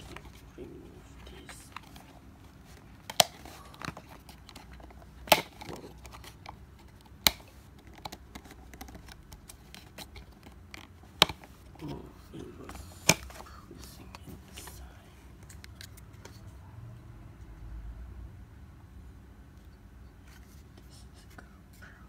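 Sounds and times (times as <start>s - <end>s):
handling rustle: 0.0s - 16.5s.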